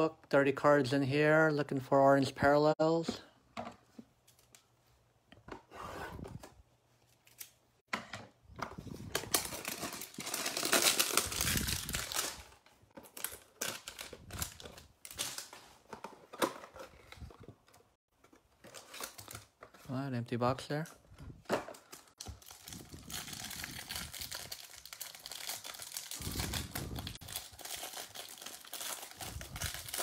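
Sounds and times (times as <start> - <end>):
packaging crinkling: 9.2 - 15.5, 21.9 - 30.0.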